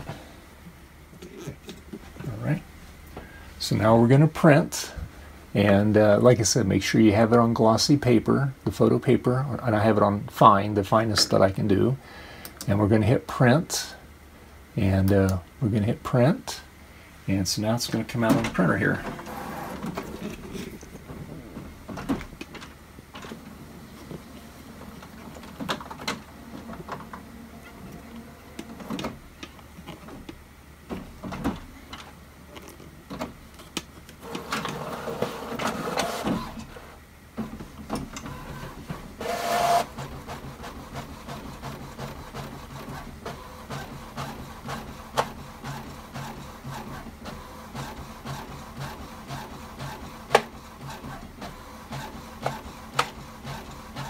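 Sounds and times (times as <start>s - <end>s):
inkjet printer printing: 18.3s - 20.7s, 24.2s - 29.2s, 34.2s - 54.0s.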